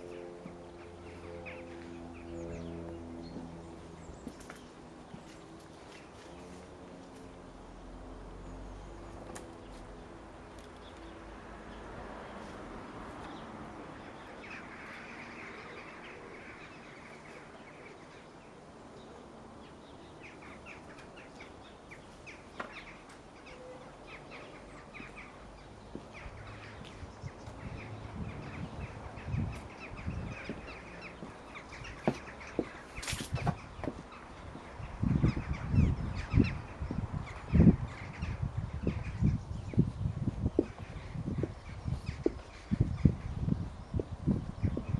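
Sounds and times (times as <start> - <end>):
small birds chirping: 8.4 - 44.9
footsteps and camera handling thumps: 32.0 - 34.7.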